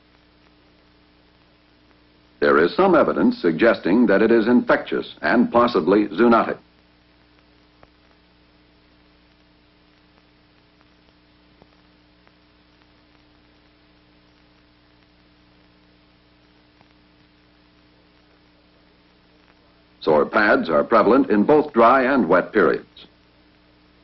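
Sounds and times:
faint ticks: 0:00.0 - 0:02.4, 0:06.7 - 0:19.8
film soundtrack hum and hiss: 0:00.0 - 0:24.0.

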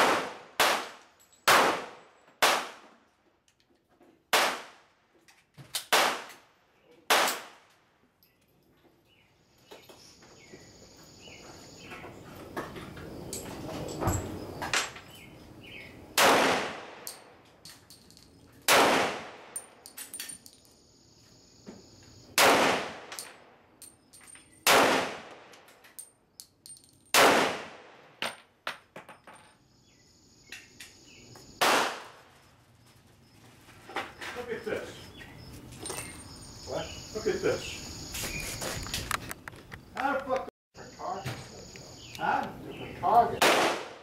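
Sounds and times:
pistol shots with echo: 0:00.0 - 0:02.8, 0:04.3 - 0:04.9, 0:05.8 - 0:06.4, 0:07.1 - 0:07.6, 0:16.2 - 0:17.2, 0:18.7 - 0:19.8, 0:22.4 - 0:23.4, 0:24.6 - 0:25.5, 0:27.1 - 0:28.0, 0:31.6 - 0:32.2, 0:43.4 - 0:44.0.

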